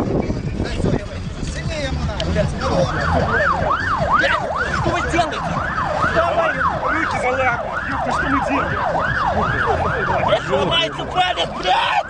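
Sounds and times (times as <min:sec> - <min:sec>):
voices: 0:00.4 - 0:12.0
emergency siren yelping: 0:02.8 - 0:12.0.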